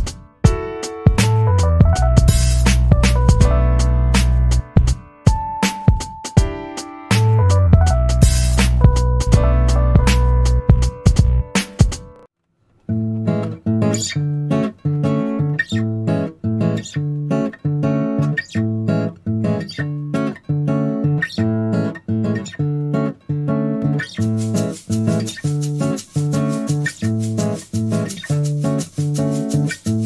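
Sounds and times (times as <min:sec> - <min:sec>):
background music: 0:00.0 - 0:12.3
plucked guitar chords: 0:00.0 - 0:12.3, 0:12.9 - 0:30.0.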